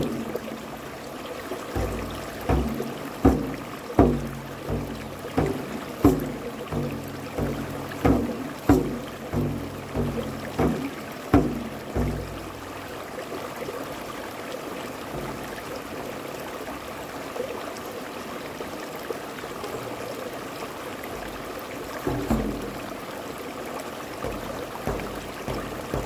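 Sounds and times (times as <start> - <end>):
low ringing frame drum strikes: 0.0 - 0.7, 1.8 - 12.8, 15.1 - 15.8, 22.1 - 23.0, 24.2 - 26.0
rocky stream running: 0.0 - 26.0.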